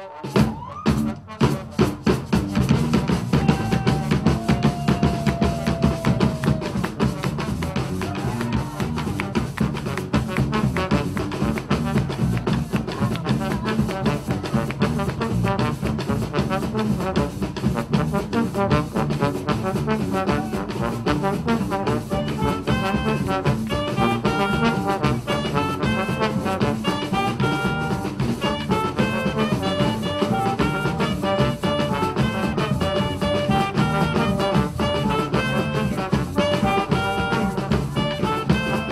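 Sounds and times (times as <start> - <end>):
brass band playing: 0.0 - 38.9
fast drum beat: 0.2 - 38.9.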